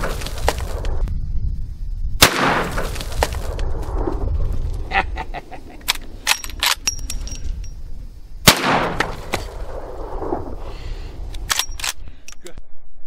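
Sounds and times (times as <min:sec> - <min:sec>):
rifle shot with echo: 0:02.2 - 0:03.0, 0:08.4 - 0:10.6.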